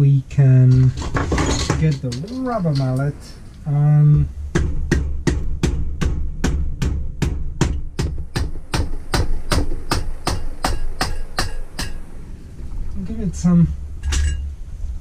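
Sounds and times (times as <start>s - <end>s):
rubber mallet tapping on metal: 4.5s - 12.0s.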